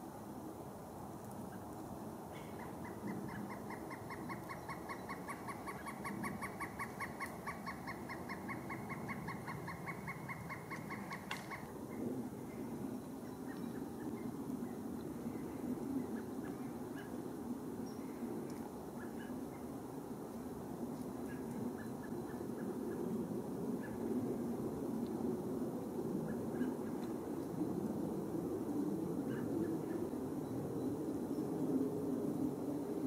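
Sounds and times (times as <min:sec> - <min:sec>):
woodpecker calling rapid notes: 0:02.6 - 0:11.7.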